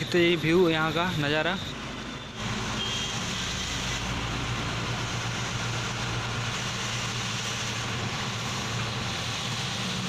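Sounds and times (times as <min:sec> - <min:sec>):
road noise: 0:00.0 - 0:10.0
truck engine humming: 0:00.0 - 0:10.0.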